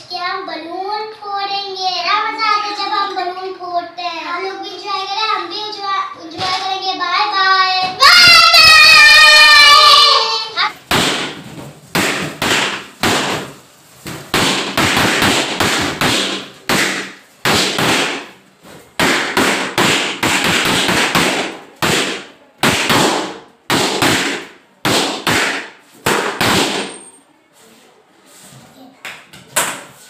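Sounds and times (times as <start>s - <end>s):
balloons popping: 8.0s - 26.9s.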